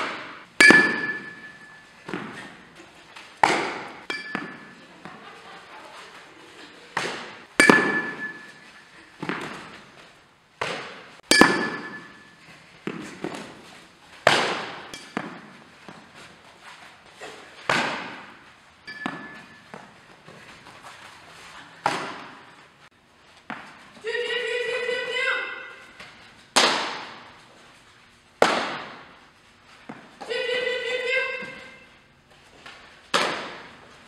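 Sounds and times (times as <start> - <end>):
metallic bat ping: 0.1 - 1.9, 3.4 - 4.8, 7.6 - 8.7, 11.3 - 12.4, 18.9 - 19.6.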